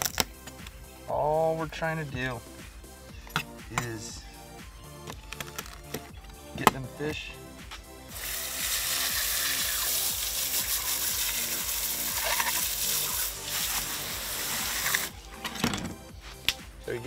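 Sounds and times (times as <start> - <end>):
hose nozzle spraying water: 8.1 - 15.1.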